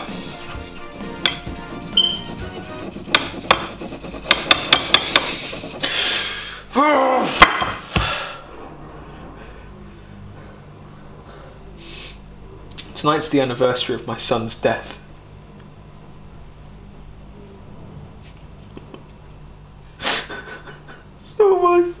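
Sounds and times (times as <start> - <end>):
knife chopping on a plate: 2.3 - 5.5.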